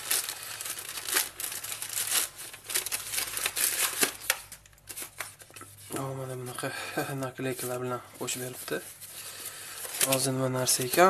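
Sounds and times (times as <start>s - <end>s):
plastic bag tearing: 0.0s - 5.5s
plastic mailer bag crinkling: 0.0s - 5.8s, 9.7s - 11.0s.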